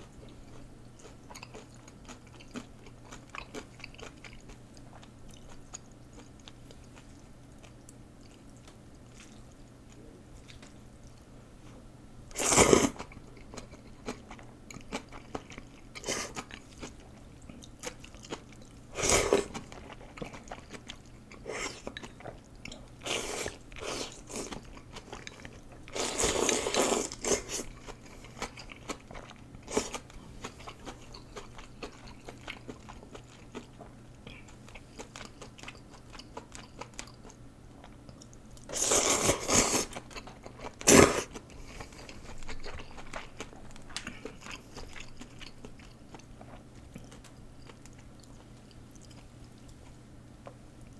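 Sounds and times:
chewing and mouth clicks: 0.2 - 11.3, 13.0 - 50.9
noodles being slurped: 25.9 - 27.8, 38.7 - 40.0.

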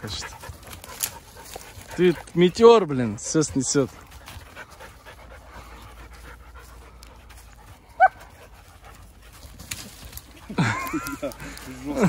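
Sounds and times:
dogs panting: 0.0 - 12.0
dog yelping: 8.0 - 8.3.

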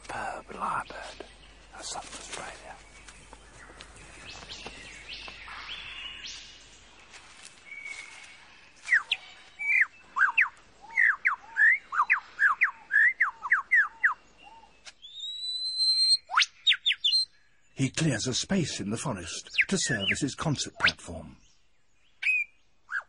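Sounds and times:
lyrebird whistling song: 7.7 - 17.4, 22.0 - 23.0.

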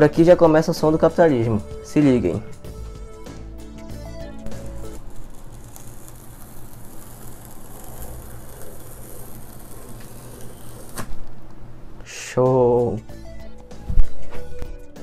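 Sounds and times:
cardboard tear strip ripping: 4.4 - 11.2.

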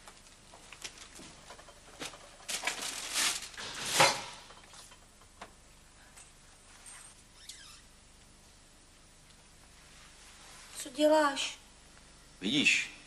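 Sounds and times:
rustling and knocking: 0.0 - 5.6.

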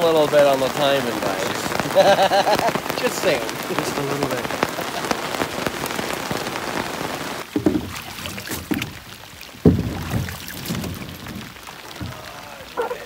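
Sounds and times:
rain falling on a lake: 0.0 - 13.0
rain pattering on a tarp: 0.0 - 13.0
thumps and knocks in a canoe: 7.4 - 13.0.

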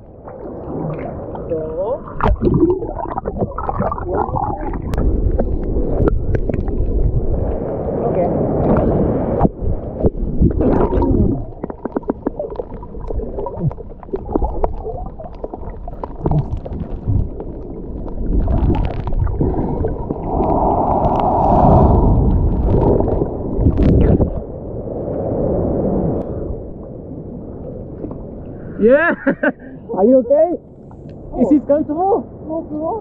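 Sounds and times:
water rushing: 0.0 - 25.6
sea water sloshing: 0.0 - 28.8
water splashes: 0.0 - 29.3.

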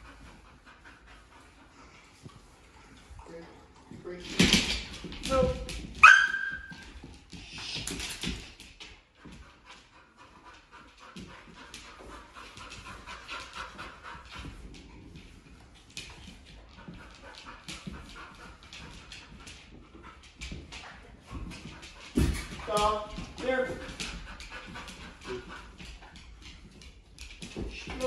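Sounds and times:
dog panting: 0.0 - 5.2, 6.6 - 28.0
dog claws clicking on floor: 3.9 - 28.0.

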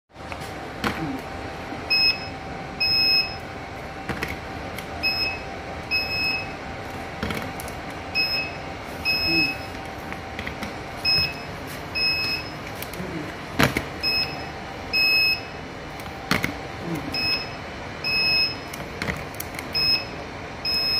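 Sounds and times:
steady machine hum: 0.1 - 20.9
short high beeps: 8.2 - 9.7, 17.1 - 18.7.

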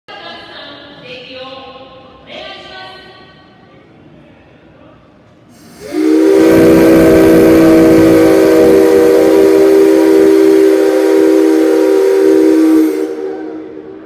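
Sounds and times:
steam hiss: 5.5 - 14.0
steam locomotive whistle: 5.6 - 14.0.

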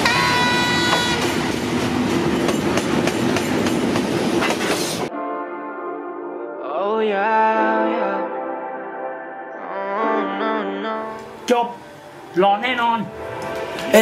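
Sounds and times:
train wheels clattering on rails: 0.0 - 5.1
sustained musical chord: 5.1 - 14.0.

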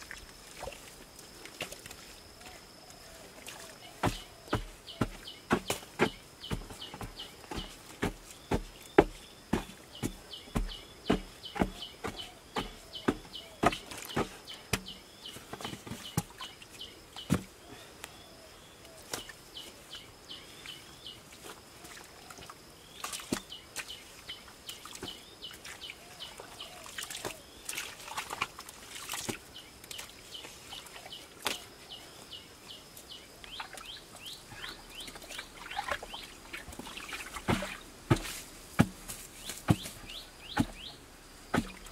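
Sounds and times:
bird chirping: 2.4 - 21.2, 29.6 - 37.8, 39.4 - 41.9
digging tool knocking earth: 4.0 - 16.4, 17.2 - 17.5, 37.1 - 41.9.

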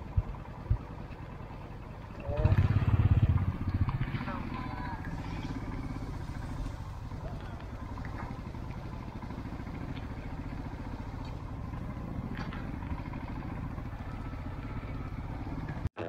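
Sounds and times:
motorcycle engine running at low revs: 0.0 - 15.9.

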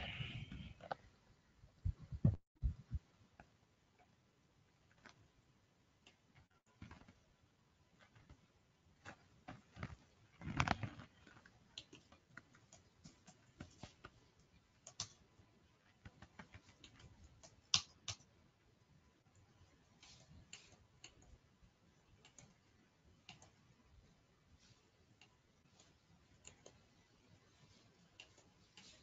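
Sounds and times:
mouse clicks: 14.8 - 15.3, 16.1 - 18.3.

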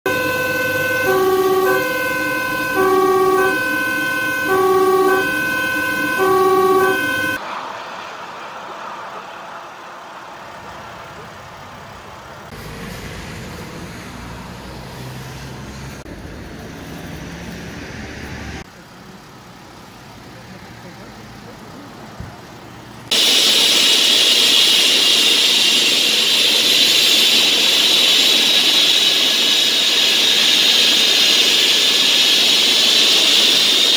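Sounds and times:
two-tone fire engine siren: 0.0 - 7.4, 23.1 - 33.9
traffic and engine rumble: 0.1 - 23.2.

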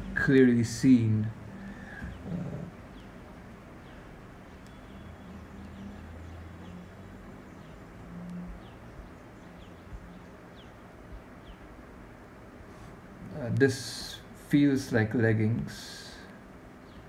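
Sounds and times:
background hum and hiss: 0.0 - 17.0
high falling chirp: 3.8 - 11.7.

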